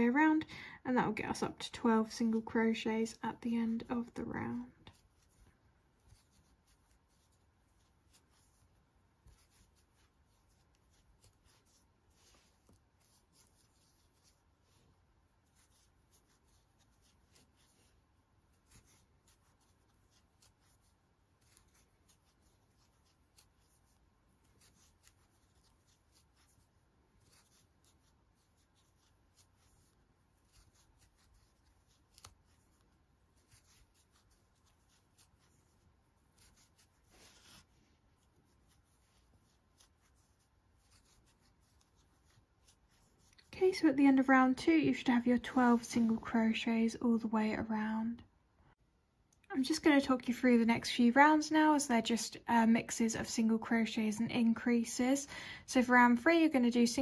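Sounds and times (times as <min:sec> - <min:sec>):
crochet hook clicking and yarn rustling: 0:03.9 - 0:43.9.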